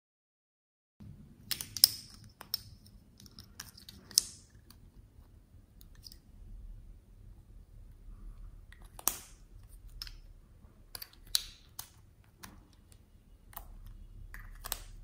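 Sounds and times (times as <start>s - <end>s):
plastic tubes clicking: 1.4s - 4.8s, 10.9s - 15.0s.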